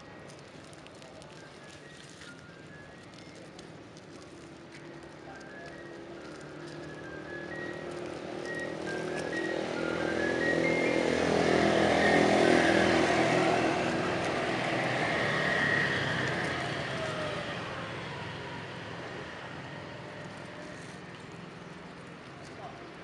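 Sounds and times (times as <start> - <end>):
vehicle driving past: 6.2 - 22.4.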